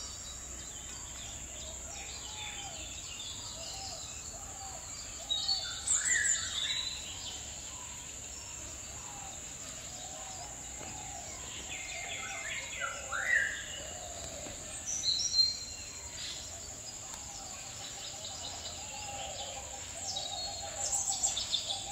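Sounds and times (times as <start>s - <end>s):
birds chirping and whistling: 0.0s - 7.5s
insects droning: 0.0s - 21.9s.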